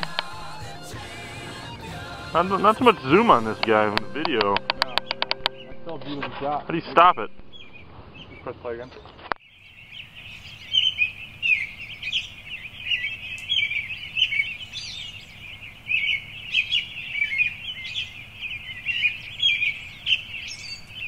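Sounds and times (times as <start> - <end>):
small birds chirping: 6.8 - 21.0.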